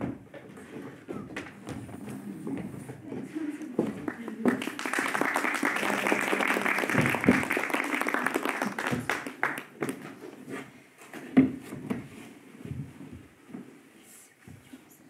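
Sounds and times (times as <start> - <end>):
knocks and shuffling on stage: 0.0 - 5.2, 8.4 - 15.0
audience applauding: 4.0 - 10.0.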